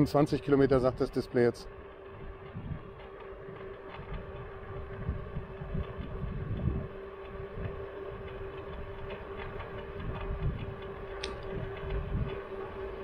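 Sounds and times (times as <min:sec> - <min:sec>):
electric scooter motor whine: 0:00.0 - 0:13.0
wind buffeting microphone: 0:00.3 - 0:13.0.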